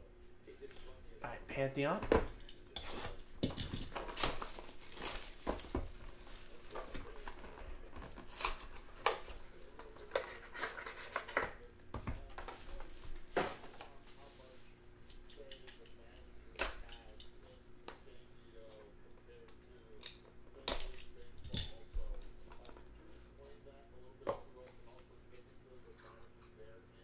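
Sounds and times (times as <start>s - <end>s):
packaging tearing and crinkling: 4.0s - 7.3s.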